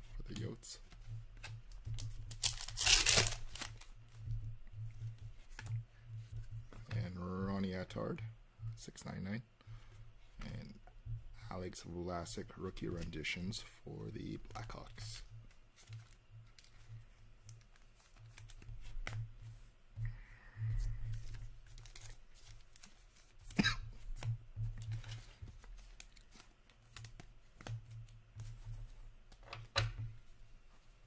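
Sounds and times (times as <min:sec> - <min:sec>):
low steady hum: 0:00.0 - 0:31.0
cards rustling: 0:00.2 - 0:04.3, 0:12.3 - 0:19.6, 0:20.7 - 0:29.7
cards clicking: 0:01.4 - 0:03.9, 0:21.2 - 0:23.0.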